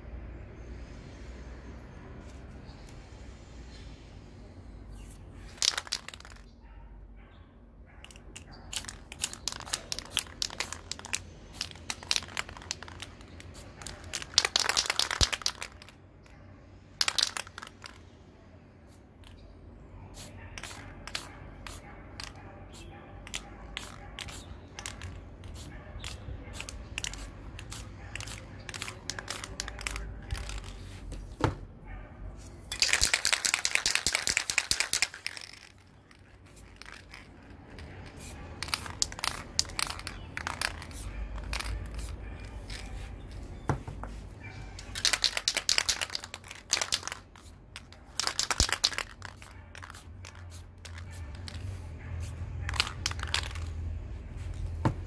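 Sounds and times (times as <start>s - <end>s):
spray can hissing: 8.7s - 15.9s, 23.3s - 30.6s, 48.1s - 53.7s.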